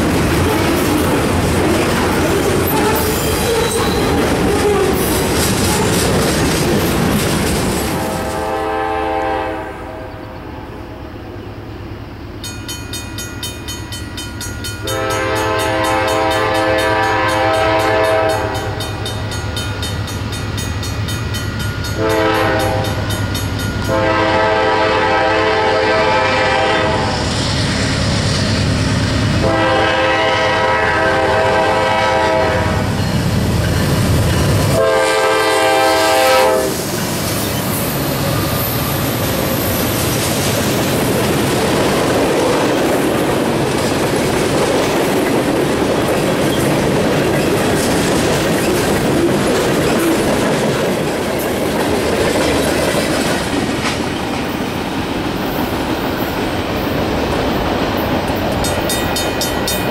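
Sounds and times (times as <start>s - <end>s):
low rumble of train engine: 0.0s - 59.9s
train air horn blasts: 2.7s - 5.0s, 8.0s - 10.3s, 14.8s - 19.0s, 22.0s - 23.0s, 23.8s - 27.3s, 29.4s - 32.9s, 34.7s - 37.0s.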